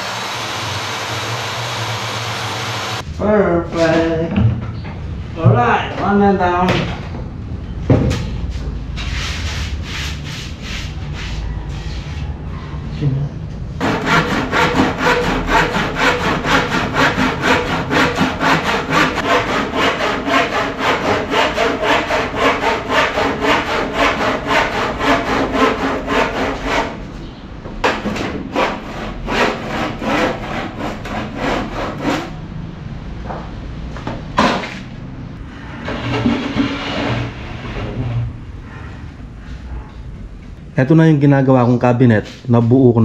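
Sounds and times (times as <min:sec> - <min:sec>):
handsaw cutting board: 0:13.8 - 0:27.0, 0:27.8 - 0:32.3.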